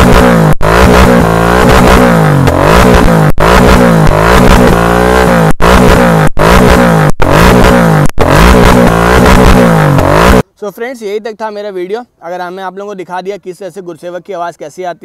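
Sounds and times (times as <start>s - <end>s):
motorcycle engine revving: 0.0s - 10.5s.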